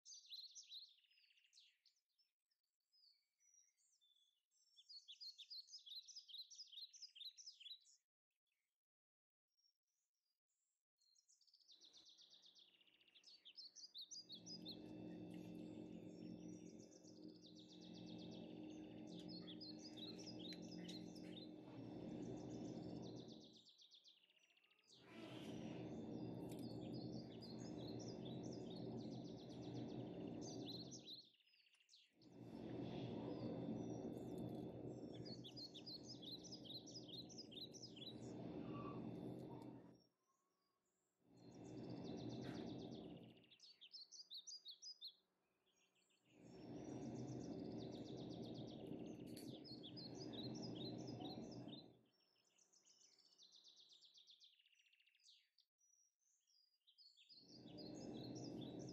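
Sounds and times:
birds chirping and trilling: 0.0s - 2.0s, 3.0s - 8.0s, 11.2s - 40.1s, 41.0s - 58.9s
low background rumble: 14.3s - 23.6s, 25.0s - 31.2s, 32.3s - 40.0s, 41.4s - 43.5s, 46.4s - 51.9s, 57.5s - 58.9s.

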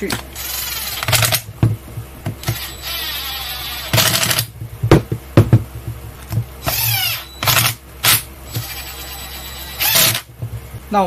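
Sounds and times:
impact driver running: 0.1s - 1.5s, 2.4s - 4.5s, 6.6s - 10.3s
sharp knocks: 3.9s - 6.7s.

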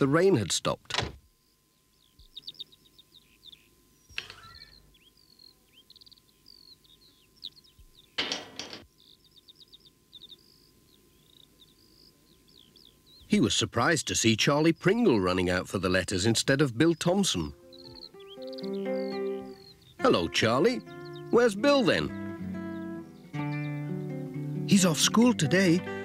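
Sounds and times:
small birds chirping and trilling: 1.3s - 26.0s
iron gate opening and shutting: 8.2s - 8.8s.

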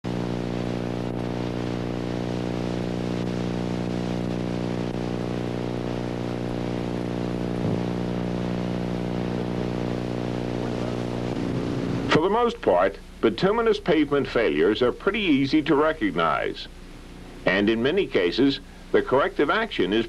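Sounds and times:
low buzzy drone: 2.8s - 12.2s.

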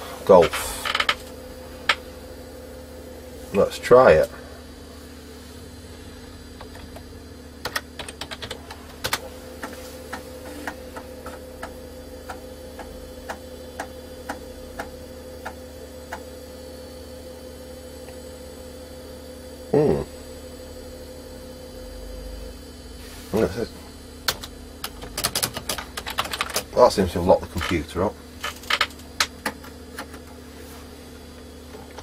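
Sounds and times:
floppy disk drive humming: 0.0s - 32.0s
keyboard keys clicking: 7.6s - 9.2s
disk drive head ticking: 9.0s - 16.3s.

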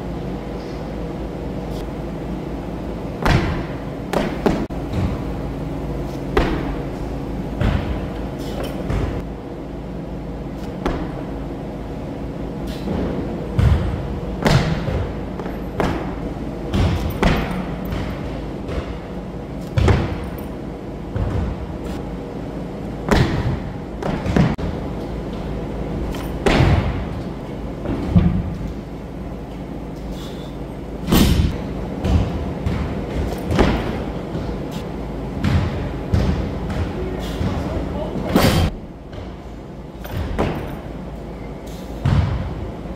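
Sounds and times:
low hum: 0.0s - 42.9s
barbell plates thudding and clanking: 6.3s - 9.2s, 12.7s - 21.7s, 26.0s - 27.2s, 31.0s - 34.7s, 35.3s - 40.9s.

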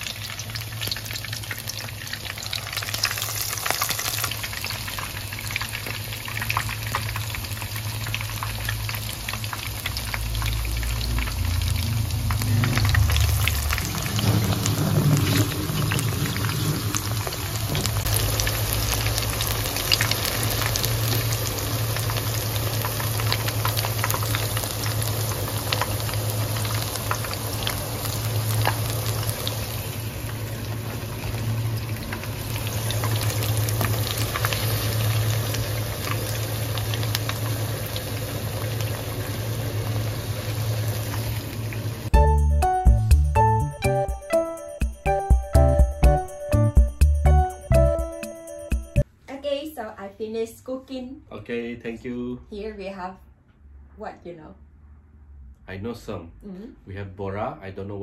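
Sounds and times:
fritters deep-frying in hot oil: 0.0s - 42.2s.

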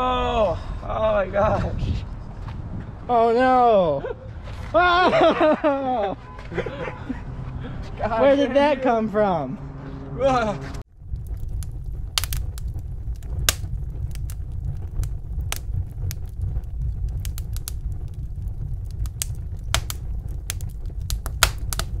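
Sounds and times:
fire roaring and crackling: 10.7s - 22.0s.

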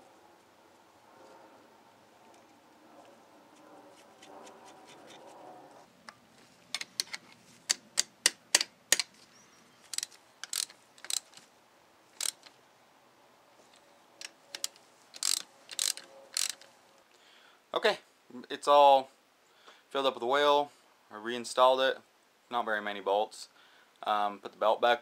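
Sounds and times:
ratchet wrench clicking: 9.9s - 11.4s, 12.2s - 12.5s, 14.6s - 16.7s.

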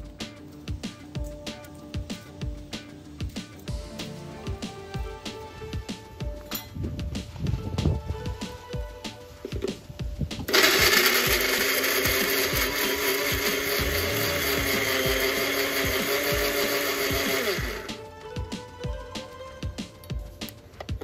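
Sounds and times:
background music: 0.0s - 21.0s
mixer grinder motor: 10.5s - 18.0s.

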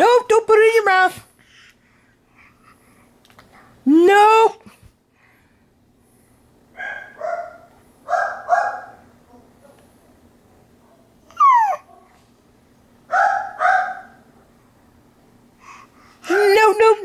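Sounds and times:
dog barking: 6.8s - 9.8s, 13.1s - 14.3s
dog whining: 11.3s - 11.9s.

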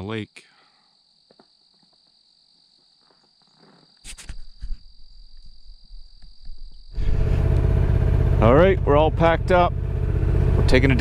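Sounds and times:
faint high insect buzz: 0.0s - 7.2s
low rumble: 6.9s - 11.0s.

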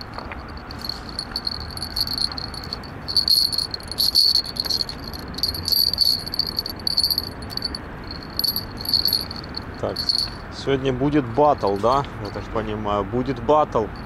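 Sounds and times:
insects chirping trill: 0.0s - 10.4s.

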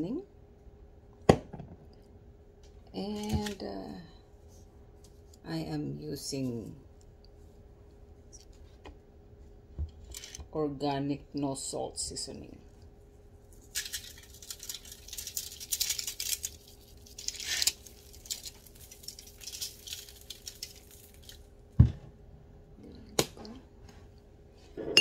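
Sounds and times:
seasoning rattling from shaker: 13.6s - 21.4s.

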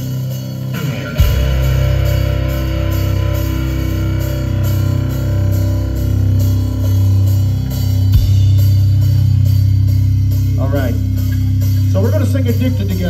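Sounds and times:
live rock band playing: 0.0s - 13.0s.

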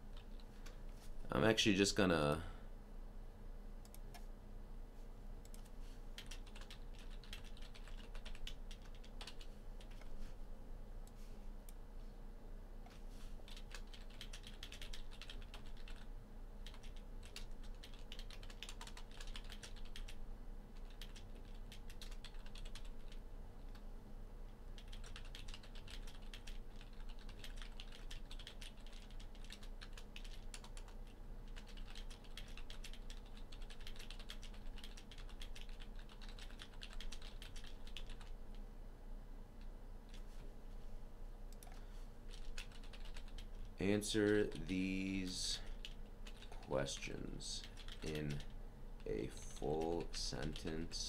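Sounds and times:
faint steady hum: 0.0s - 51.0s
computer keyboard typing: 5.5s - 10.1s, 13.5s - 20.2s, 20.8s - 23.8s, 24.8s - 38.4s, 41.5s - 44.7s, 45.7s - 47.0s, 47.6s - 50.8s.

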